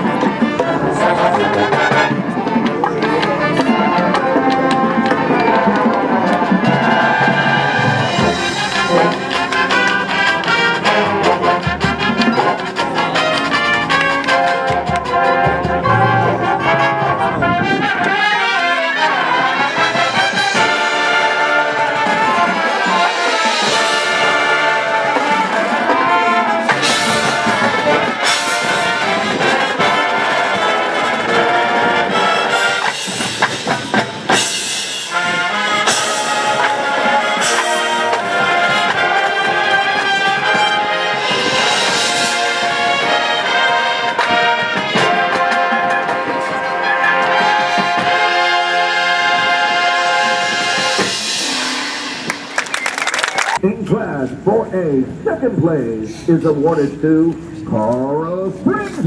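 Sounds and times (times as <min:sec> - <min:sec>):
mallet percussion: 0:00.0 - 0:29.7
marching band brass playing: 0:00.0 - 0:55.8.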